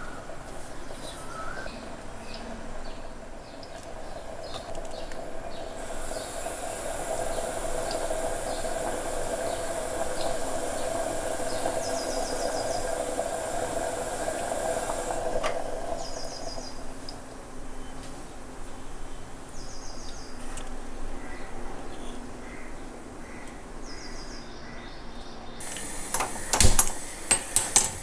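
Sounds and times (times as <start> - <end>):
gas burner hissing: 3.4 - 17.5, 25.6 - 28.0.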